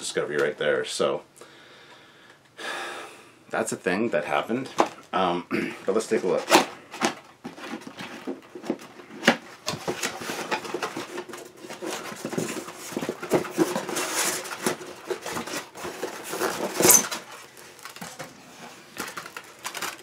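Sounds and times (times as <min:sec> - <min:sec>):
cardboard packaging rustling: 0:05.8 - 0:20.0.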